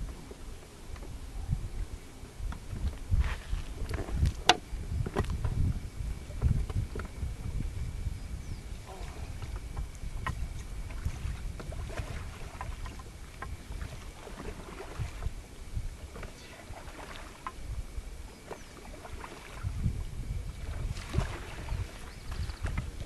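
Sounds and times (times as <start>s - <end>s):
wind buffeting microphone: 0.0s - 23.0s
lake water lapping: 8.8s - 23.0s.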